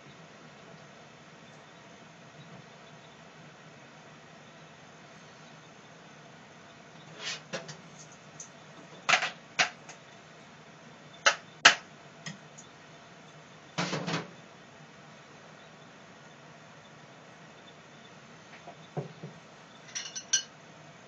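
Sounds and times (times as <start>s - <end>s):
kitchen utensils clicking and knocking: 9.1s - 9.8s, 19.9s - 20.5s.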